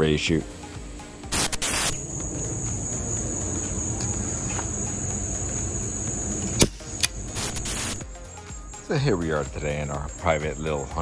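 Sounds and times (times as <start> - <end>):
salt gun firing crack: 1.3 - 2.0, 6.6 - 8.0
high-pitched insect drone: 1.3 - 11.0
salt gun cocking rasp: 6.6 - 8.0.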